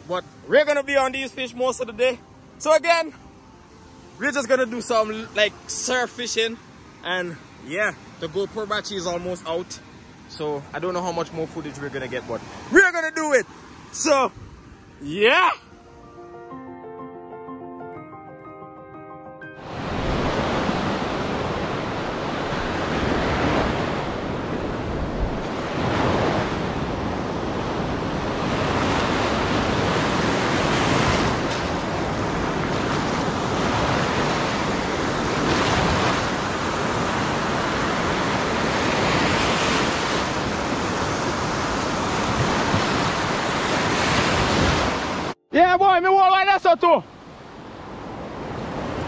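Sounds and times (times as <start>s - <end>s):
ocean surf breaking: 0.0s - 15.6s, 19.6s - 49.0s
wind on microphone: 19.7s - 45.3s.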